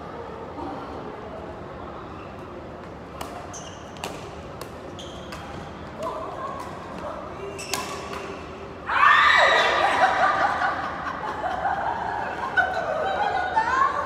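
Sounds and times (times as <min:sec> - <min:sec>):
rackets hitting shuttlecock: 0:02.8 - 0:07.0, 0:07.6 - 0:08.6
shoes squeaking on court floor: 0:03.2 - 0:05.8, 0:07.4 - 0:08.4.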